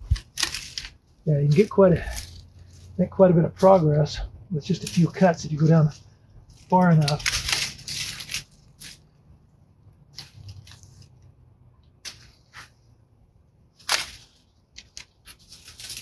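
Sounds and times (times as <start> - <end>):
dry stems crackling: 0.0 - 12.8, 13.7 - 16.0
loppers snipping woody canes: 6.6 - 9.0.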